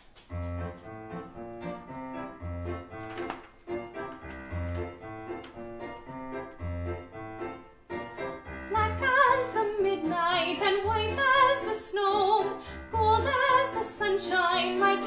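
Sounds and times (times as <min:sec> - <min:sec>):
piano accompaniment: 0:00.0 - 0:15.0
women singing choral song: 0:08.8 - 0:15.0.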